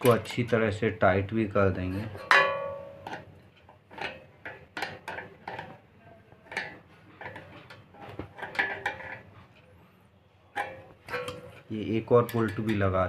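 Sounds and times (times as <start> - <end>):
light metallic clicks and clinks: 10.6 - 13.0.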